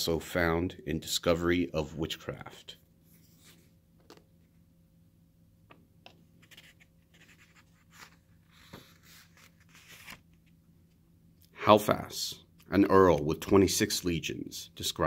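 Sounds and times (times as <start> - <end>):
low steady hum: 0.0 - 15.0
book page turning: 6.4 - 10.6.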